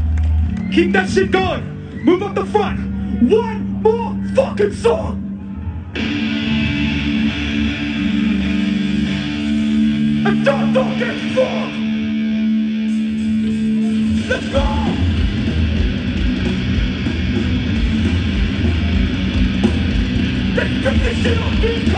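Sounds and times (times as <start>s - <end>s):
electric guitars ringing chord: 6.0s - 21.9s
drums and full band: 12.8s - 21.9s
person shouting: 14.2s - 15.1s.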